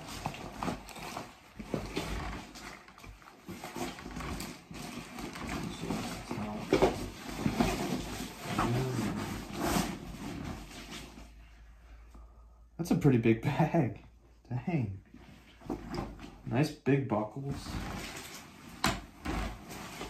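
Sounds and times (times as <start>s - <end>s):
plastic wrapping crinkling: 0.0s - 9.3s.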